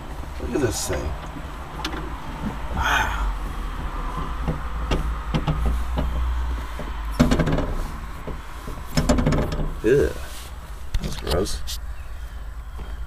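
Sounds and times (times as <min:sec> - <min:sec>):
microphone handling rumble: 0:00.0 - 0:11.9
hand clicking cab fittings: 0:00.7 - 0:02.8, 0:03.5 - 0:09.9
scrape: 0:10.1 - 0:10.8.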